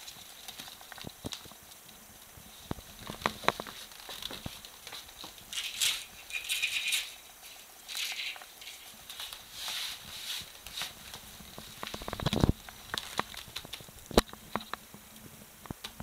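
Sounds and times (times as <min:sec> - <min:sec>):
claws scrabbling on wooden floor: 0:00.0 - 0:14.9.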